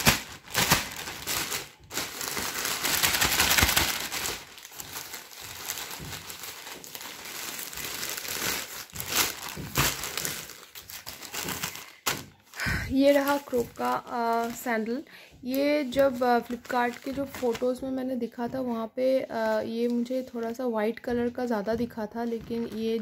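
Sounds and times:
plastic packaging crinkling: 0.0 - 17.9.

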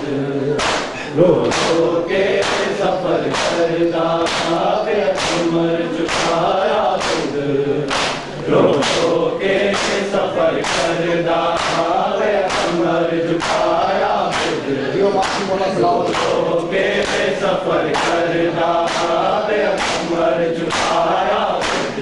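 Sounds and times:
men chanting together: 0.0 - 22.0
hands slapping bare chests: 0.6 - 1.8, 2.4 - 7.3, 7.9 - 9.1, 9.7 - 12.8, 13.4 - 14.6, 15.2 - 15.5, 16.1 - 16.4, 17.0 - 17.3, 17.9 - 22.0.

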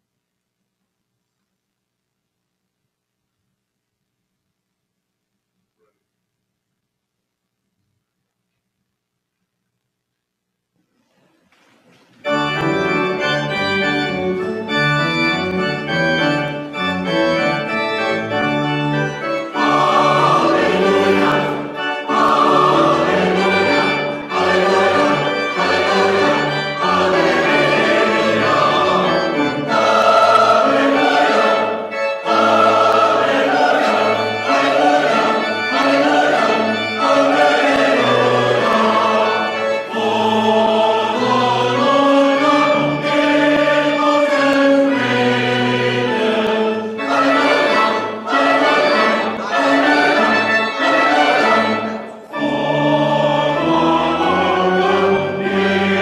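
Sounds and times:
church organ chords: 12.2 - 56.0
voices singing: 17.7 - 56.0.

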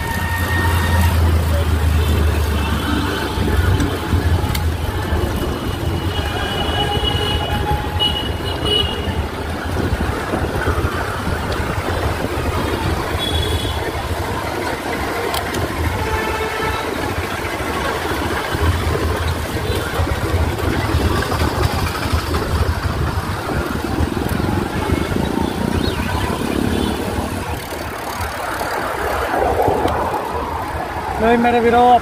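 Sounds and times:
road traffic noise: 0.0 - 32.0
wind rumbling on microphone: 3.3 - 32.0
vehicle horn toots: 4.4 - 9.2, 13.2 - 13.9.

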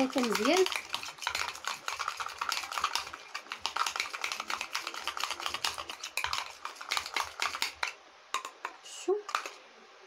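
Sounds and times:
spoon clicking and scraping bowl: 0.0 - 9.6.

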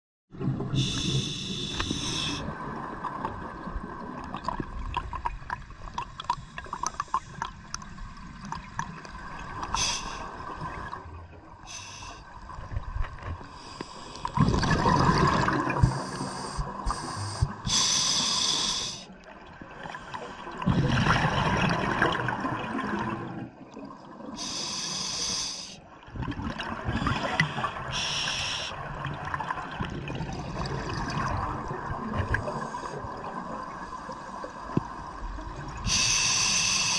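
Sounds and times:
regulator hissing inhalations: 0.8 - 2.4, 9.7 - 10.3, 11.7 - 12.2, 15.8 - 19.1, 24.4 - 25.8, 27.9 - 28.8, 35.8 - 36.9
exhaled air bubbling: 14.1 - 17.8, 19.8 - 24.5, 26.1 - 33.8.

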